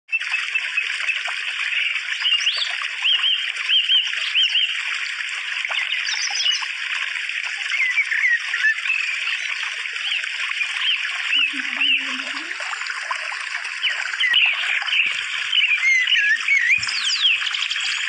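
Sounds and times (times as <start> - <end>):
small birds chirping: 0.1 - 4.8, 5.6 - 6.8, 7.6 - 12.6, 13.7 - 18.0
water trickling and splashing: 0.1 - 18.0.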